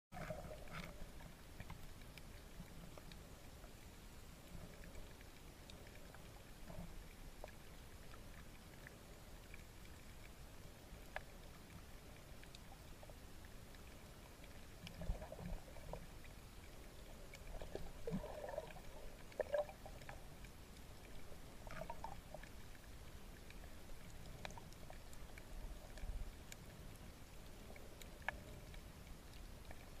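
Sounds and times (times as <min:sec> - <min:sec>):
underwater low rumble: 0:00.1 - 0:30.0
bubbling water: 0:14.7 - 0:26.3.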